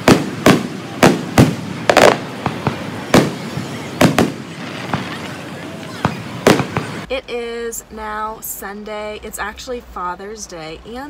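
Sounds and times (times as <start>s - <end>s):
loud sharp bangs with echo: 0.0s - 5.2s, 6.0s - 7.1s.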